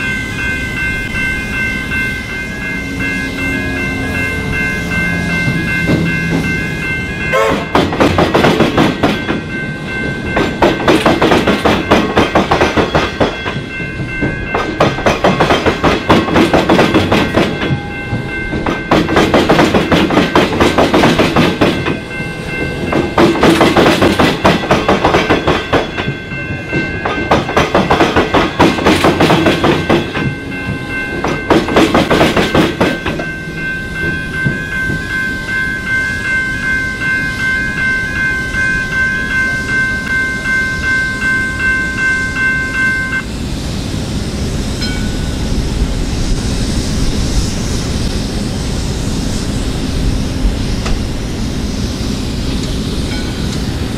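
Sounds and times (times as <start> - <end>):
train wheels clattering over crossing: 0.0 - 41.7
crossing warning bells ringing: 0.0 - 46.3, 48.0 - 53.9.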